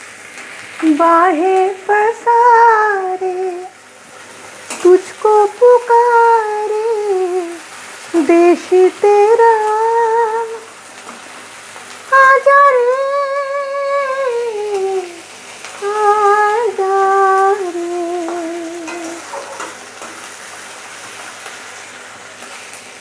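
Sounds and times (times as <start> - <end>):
onions sizzling in oil: 0.0 - 23.0
woman singing: 0.8 - 3.8, 4.7 - 10.7, 12.1 - 19.4.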